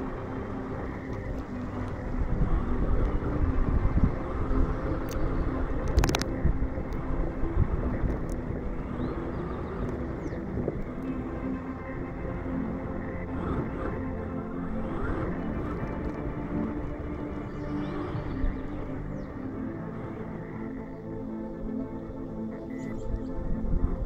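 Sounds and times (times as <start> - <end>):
electric motor of rc car: 0.0 - 11.3, 12.0 - 18.8
sharp clicks: 4.9 - 7.0.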